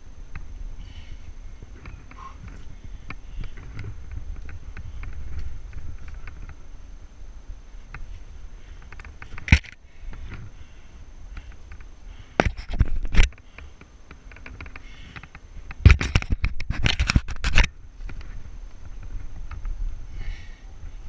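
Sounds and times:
low rumble on microphone: 0:00.0 - 0:13.6, 0:14.2 - 0:21.0.

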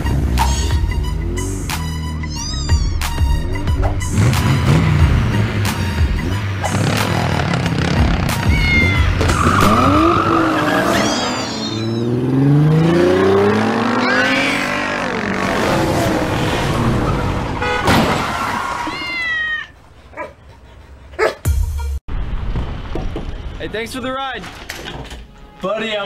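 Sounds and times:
cat meowing: 0:02.2 - 0:03.0, 0:08.4 - 0:09.2, 0:10.9 - 0:12.1
tyre squeal: 0:02.2 - 0:03.1, 0:08.4 - 0:12.2
car engine revving: 0:03.2 - 0:17.8.

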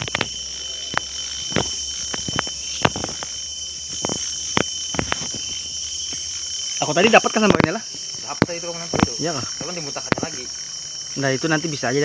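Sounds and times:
sharp clicks and snaps: 0:00.0 - 0:05.4, 0:07.3 - 0:10.6
insects shrilling: 0:00.0 - 0:12.0.

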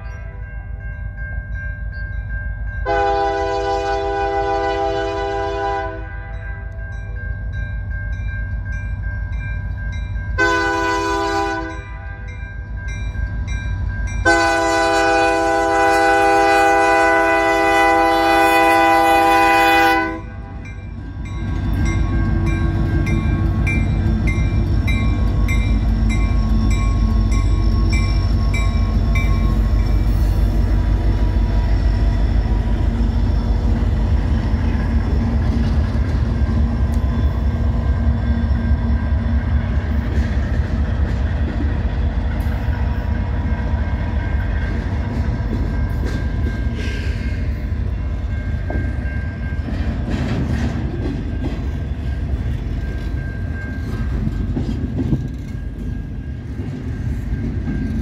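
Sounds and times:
diesel locomotive rumble: 0:00.0 - 0:58.0
locomotive air horn blasts: 0:02.8 - 0:06.4, 0:10.4 - 0:12.3, 0:14.2 - 0:20.6.

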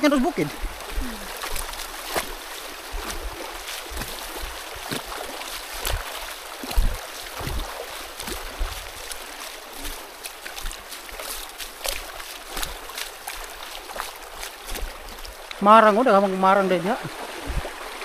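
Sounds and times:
soft low thumps: 0:00.1 - 0:09.2.

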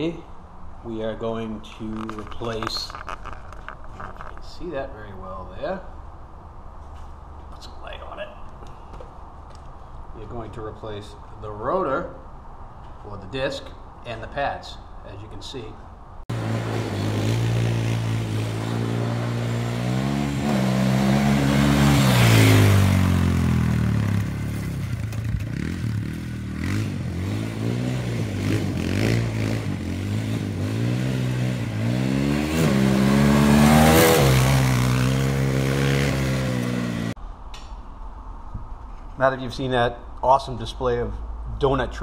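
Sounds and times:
gravel spraying from tyres: 0:16.3 - 0:37.0
quad engine revving: 0:16.3 - 0:37.2.

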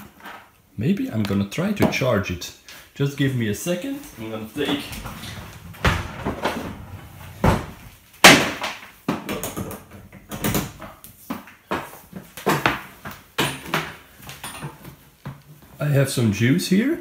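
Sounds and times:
objects knocking and bumping: 0:04.6 - 0:15.8.

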